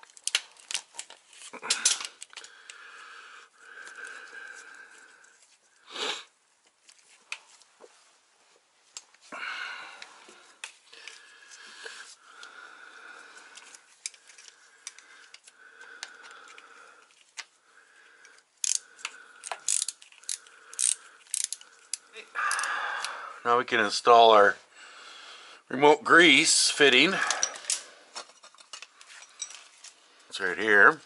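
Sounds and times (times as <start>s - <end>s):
gloves rustling: 0.0s - 22.1s.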